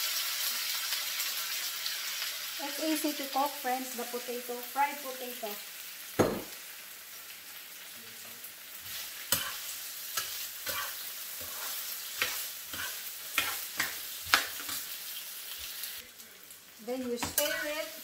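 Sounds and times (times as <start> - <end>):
potatoes sizzling in oil: 0.0 - 18.0
utensil scraping a pan: 8.8 - 14.9, 17.1 - 18.0.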